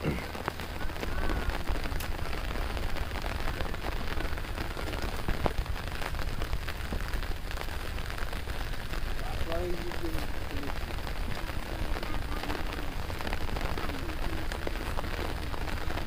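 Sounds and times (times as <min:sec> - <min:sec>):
rain on fabric umbrella: 0:00.0 - 0:16.0
rain on water: 0:00.0 - 0:16.0.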